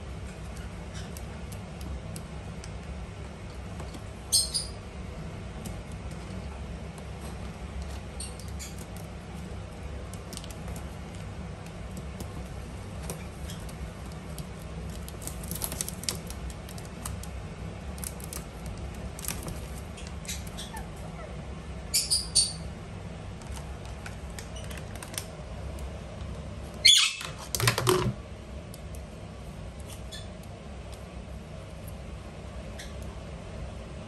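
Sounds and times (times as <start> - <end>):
parakeet calls: 4.3 - 4.8, 20.2 - 22.7, 26.8 - 27.3.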